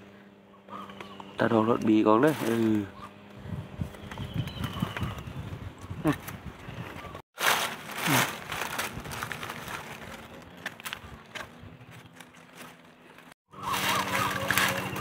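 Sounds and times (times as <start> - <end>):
dry leaves rustling and crackling: 1.5 - 2.9, 7.4 - 15.0
twigs snapping: 7.4 - 12.8, 13.6 - 15.0.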